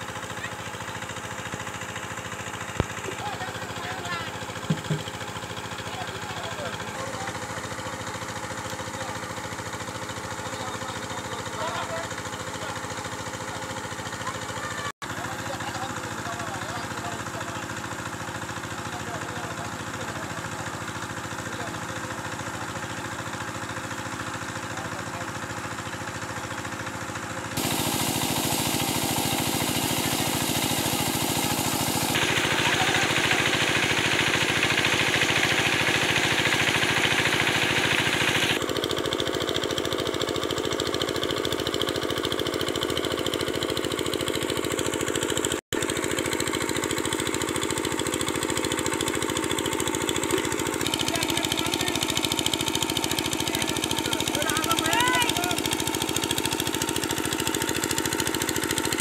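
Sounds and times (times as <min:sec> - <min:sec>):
water pump engine running: 0:00.0 - 0:59.0.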